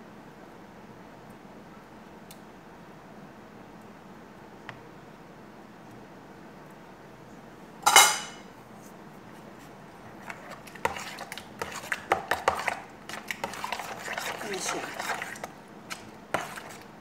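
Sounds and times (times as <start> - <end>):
utensils and dishes clattering: 7.9 - 8.4.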